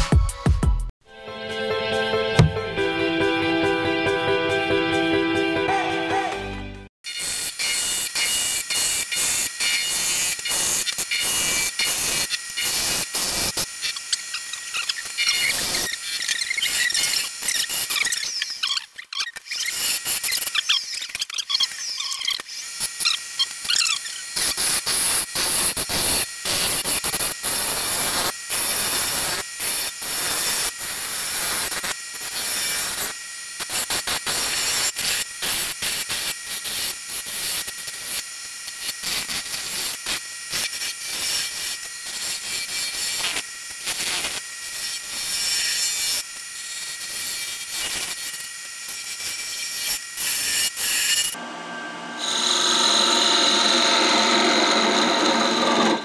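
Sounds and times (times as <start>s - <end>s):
faint whine of lathe: 51.3s - 56.0s.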